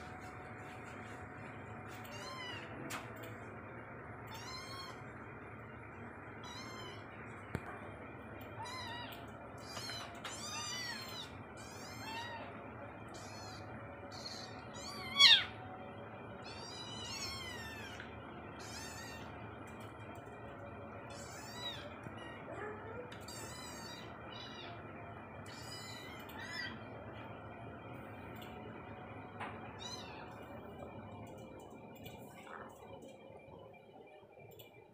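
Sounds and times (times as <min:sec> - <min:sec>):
loud kitten cry: 0:06.4 - 0:07.0, 0:08.6 - 0:12.5, 0:13.1 - 0:15.6, 0:16.4 - 0:18.0, 0:18.6 - 0:19.3, 0:21.1 - 0:24.8, 0:25.5 - 0:26.8.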